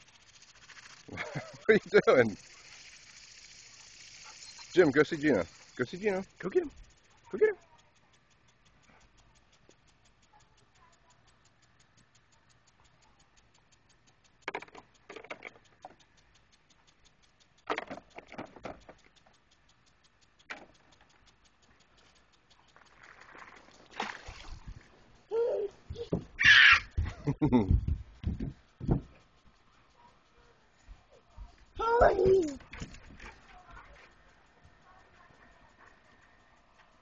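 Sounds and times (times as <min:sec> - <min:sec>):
lawn sprinkler ticking: 0:00.0 - 0:37.0
bumps and rustles: 0:25.7 - 0:29.4.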